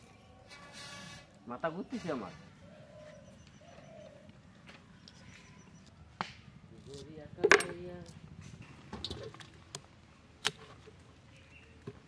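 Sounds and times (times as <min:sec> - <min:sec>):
objects striking a metal pot: 0:07.4 - 0:07.8.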